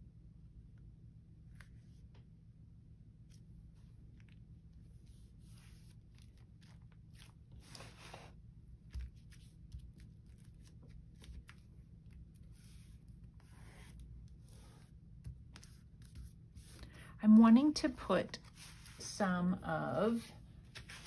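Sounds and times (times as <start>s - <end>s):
paper rustling: 5.0s - 17.0s, 18.3s - 19.2s, 19.8s - 21.0s.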